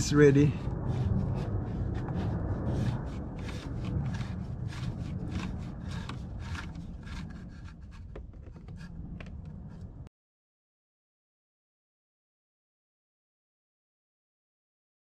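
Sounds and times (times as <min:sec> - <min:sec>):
cap being unscrewed scraping: 0:00.9 - 0:08.9.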